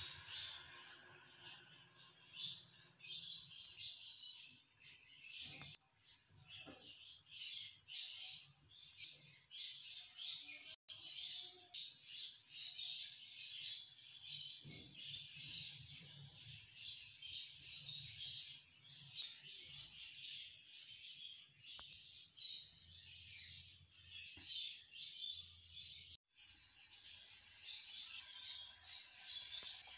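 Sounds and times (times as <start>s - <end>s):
small birds chirping: 0.0s - 29.9s.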